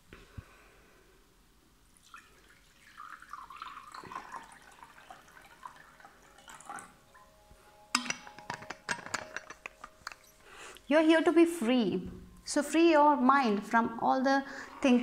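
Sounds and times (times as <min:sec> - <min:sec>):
water pouring into bowl: 0:01.9 - 0:07.3.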